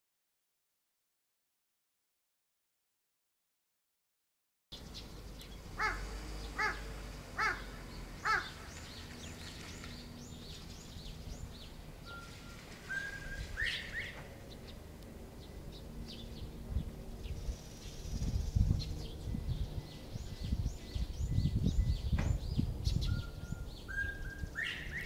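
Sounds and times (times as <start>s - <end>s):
small birds chirping: 4.7s - 25.0s
crow cawing: 5.8s - 8.6s
bobwhite whistling call: 12.0s - 14.2s, 23.0s - 25.0s.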